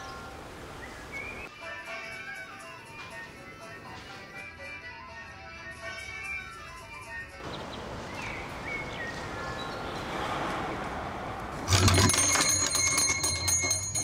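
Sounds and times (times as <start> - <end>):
outdoor street ambience: 0.0 - 14.0
doorbell jangling: 11.7 - 14.0.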